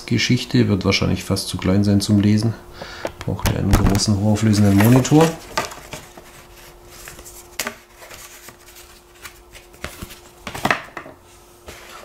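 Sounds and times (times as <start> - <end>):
faint steady hum: 0.0 - 12.0
paper booklet being moved: 3.9 - 10.7.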